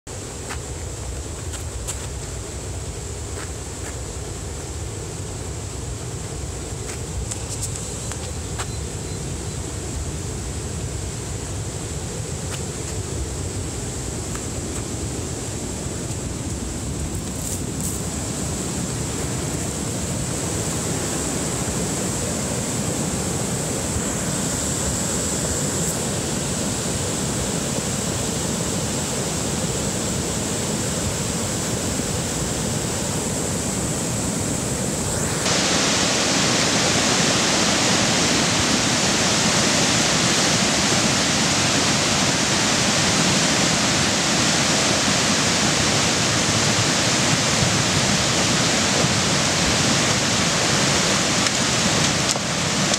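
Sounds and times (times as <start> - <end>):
muddy water and debris rushing: 35.2 - 52.9.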